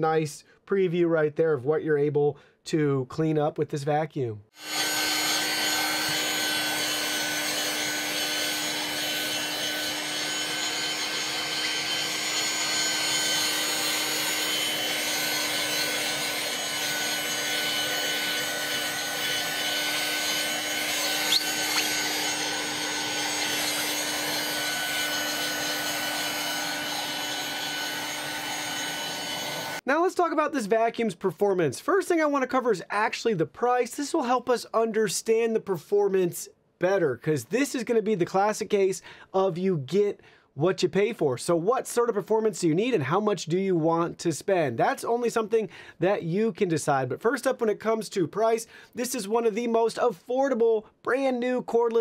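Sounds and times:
handheld vacuum motor whine: 4.6 - 29.8.

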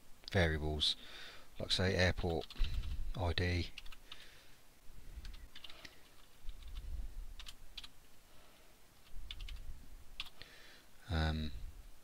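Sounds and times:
keyboard keystrokes: 9.0 - 9.6.

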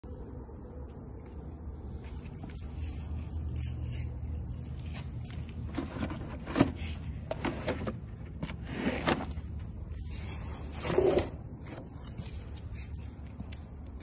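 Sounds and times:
metal drawers sliding: 5.7 - 9.5.

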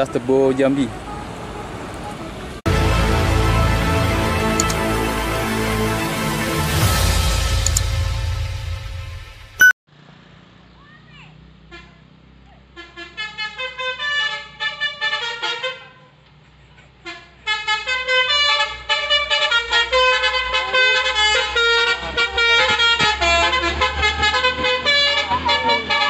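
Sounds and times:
diesel engine rumbling: 0.0 - 9.1
musical truck horn melody: 0.0 - 9.7, 12.8 - 16.2, 17.0 - 26.0.

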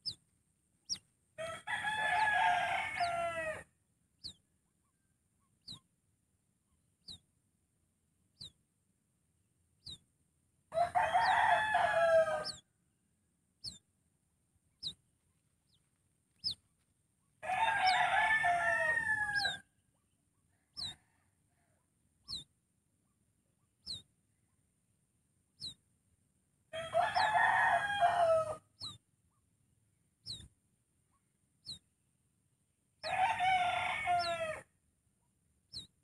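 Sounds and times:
rooster crowing: 1.4 - 3.7, 10.7 - 12.6, 17.4 - 19.6, 26.8 - 28.6, 33.0 - 34.6.

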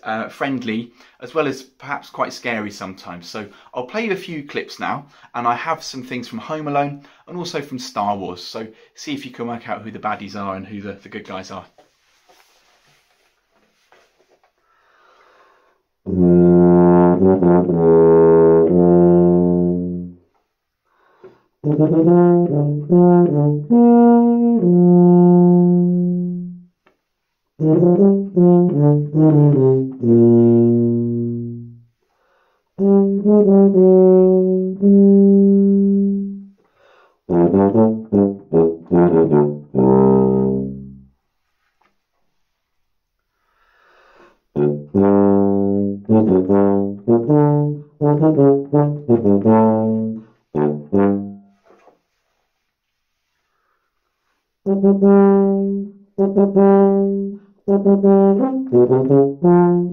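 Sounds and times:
solo tuba playing: 16.0 - 20.3, 21.6 - 26.8, 27.6 - 31.9, 32.8 - 36.6, 37.3 - 41.2, 44.5 - 51.8, 54.6 - 59.9.

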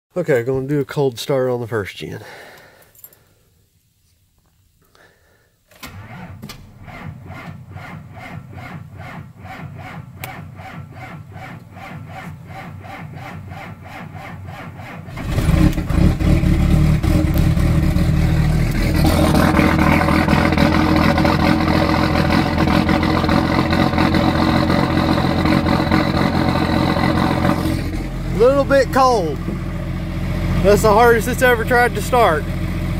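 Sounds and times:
engine starter cranking: 5.7 - 29.8
engine running loud: 6.8 - 32.9.

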